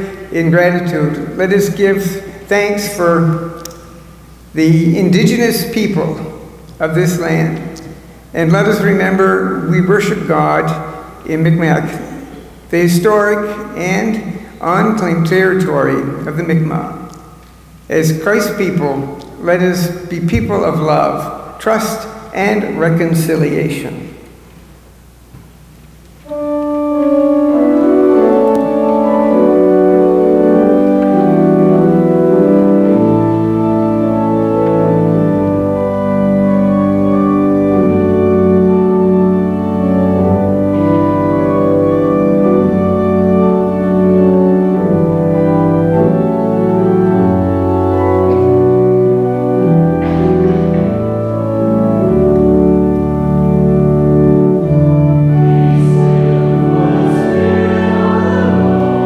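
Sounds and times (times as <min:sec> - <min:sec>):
church organ chords: 0:00.0 - 0:59.0
congregation and choir singing: 0:26.2 - 0:59.0.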